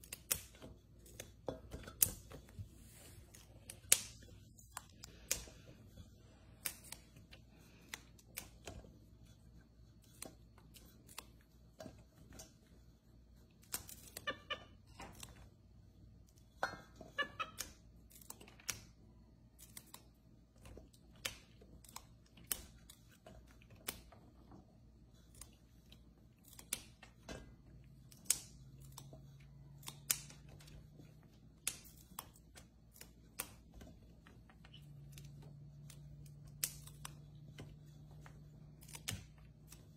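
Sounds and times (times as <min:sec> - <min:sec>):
green beans snapping: 0:00.0 - 0:02.4, 0:03.2 - 0:08.9, 0:10.0 - 0:11.8, 0:13.5 - 0:15.6, 0:16.2 - 0:24.3, 0:25.2 - 0:33.9, 0:34.7 - 0:39.9.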